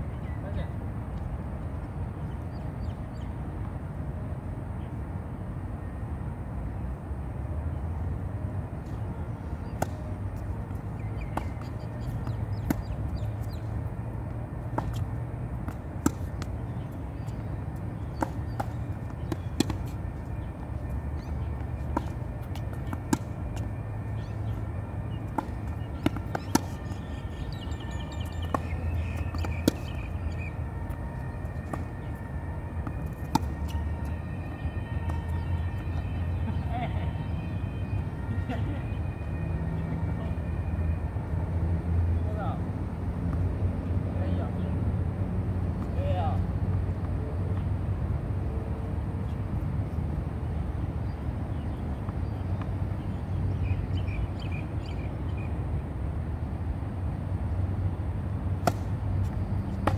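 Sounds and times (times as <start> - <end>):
rackets striking tennis balls: 9.6 - 36.6, 58.5 - 59.9
balls bouncing on hard court: 11.2 - 13.6, 14.7 - 17.4, 18.0 - 20.0, 25.3 - 27.0, 28.2 - 30.1.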